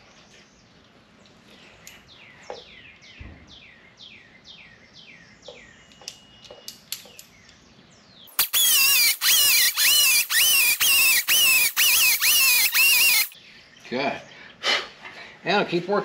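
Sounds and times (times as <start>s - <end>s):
faint bird chirping: 0.0s - 8.4s
hand grinder whining: 8.4s - 13.4s.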